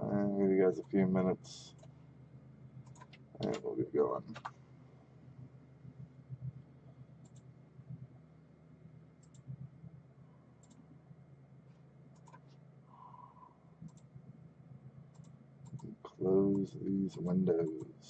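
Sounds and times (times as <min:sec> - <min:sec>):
low steady hum: 0:00.0 - 0:18.0
computer mouse clicks: 0:02.8 - 0:03.6, 0:04.3 - 0:04.6, 0:07.2 - 0:07.5, 0:09.2 - 0:09.6, 0:10.6 - 0:10.8, 0:12.2 - 0:12.6, 0:13.8 - 0:14.1, 0:15.1 - 0:16.0.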